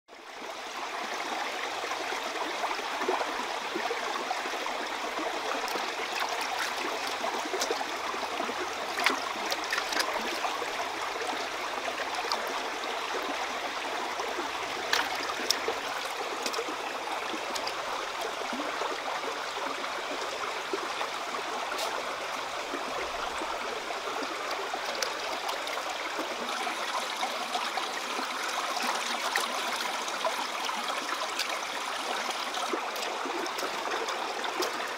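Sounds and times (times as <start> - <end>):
shallow stream running: 0.1 - 34.9
hands splashing in water: 9.0 - 10.4.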